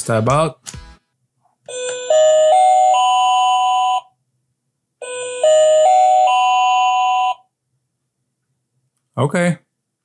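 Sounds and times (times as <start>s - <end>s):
electronic shop-door chime: 1.7s - 4.1s, 5.0s - 7.4s.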